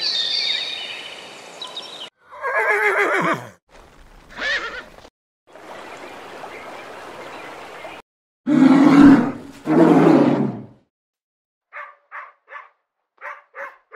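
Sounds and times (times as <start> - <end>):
bear growling: 8.5 - 10.8
dog barking: 11.7 - 13.9.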